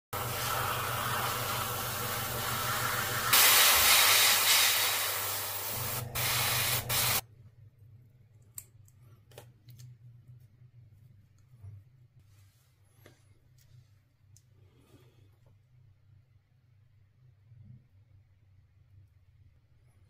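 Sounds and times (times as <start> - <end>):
airbrush spraying hiss: 0.2 - 7.2.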